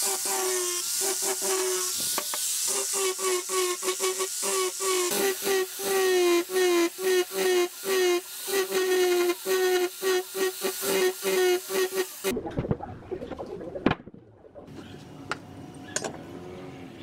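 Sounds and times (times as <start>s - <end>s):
angle grinder sanding wood: 0.0s - 12.3s.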